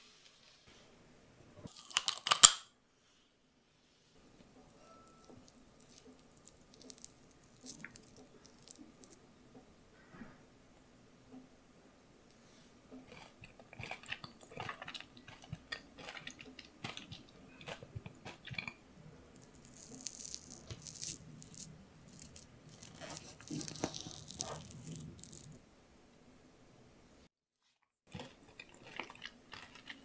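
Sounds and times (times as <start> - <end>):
chewing cookie dough: 4.4 - 9.2, 12.9 - 25.6, 28.1 - 30.0
wooden spoon scraping dough: 19.4 - 25.6.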